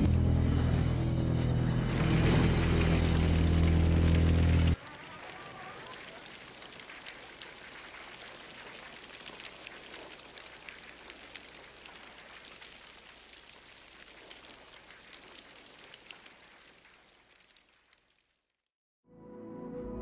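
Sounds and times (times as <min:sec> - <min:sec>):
fire crackling and hissing: 0:00.0 - 0:18.5
small sharp pops: 0:05.1 - 0:18.4.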